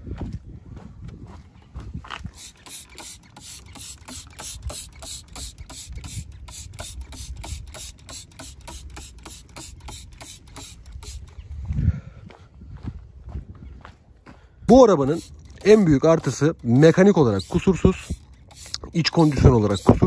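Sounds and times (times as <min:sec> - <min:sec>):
sponge scrubbing wheel: 0:14.7 - 0:20.0.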